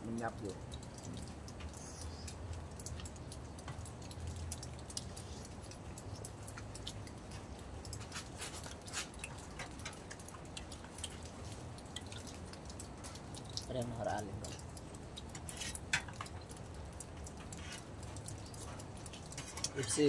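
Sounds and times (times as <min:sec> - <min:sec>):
chewing and lip-smacking: 0:14.5 - 0:19.8.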